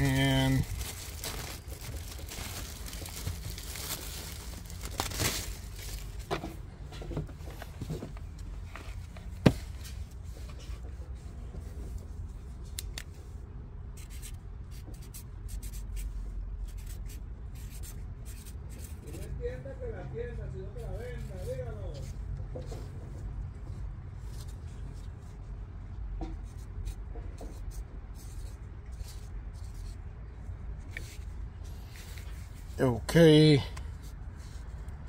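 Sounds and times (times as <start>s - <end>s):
hands rustling filter and plastic bag: 0.0s - 6.6s.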